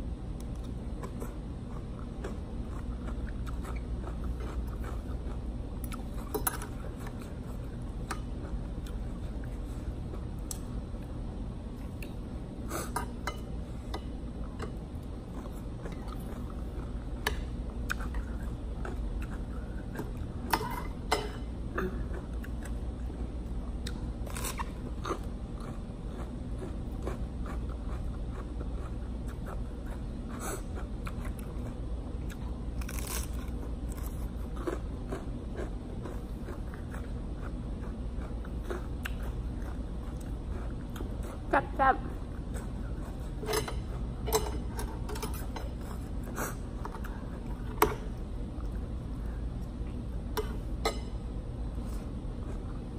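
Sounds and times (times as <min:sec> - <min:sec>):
wet chewing: 0:23.8 - 0:41.5
crunching bites of vegetable: 0:32.8 - 0:34.8.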